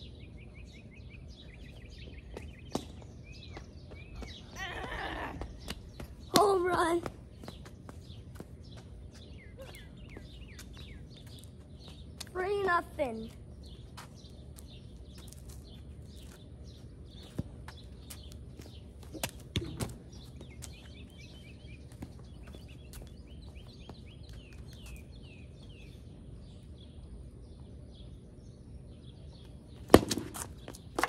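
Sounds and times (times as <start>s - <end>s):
low outdoor background: 0.0s - 31.0s
small birds chirping: 0.0s - 31.0s.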